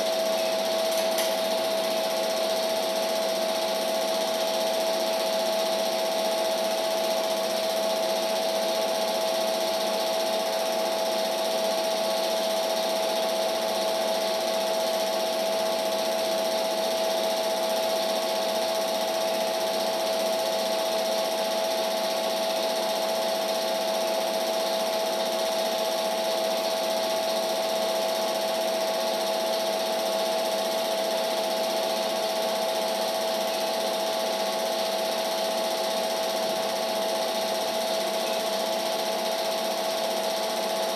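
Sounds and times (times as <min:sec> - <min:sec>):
film projector whirring: 0:00.0 - 0:40.9.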